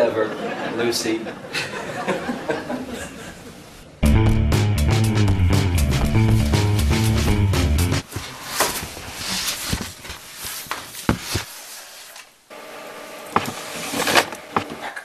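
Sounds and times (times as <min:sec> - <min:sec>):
knocks and rustles of unpacking: 0:08.0 - 0:12.3.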